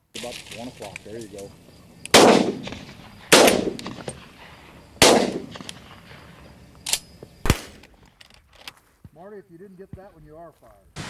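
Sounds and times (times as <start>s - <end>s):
shotgun blasts with echo: 2.1s - 4.4s, 5.0s - 6.4s, 7.4s - 7.8s.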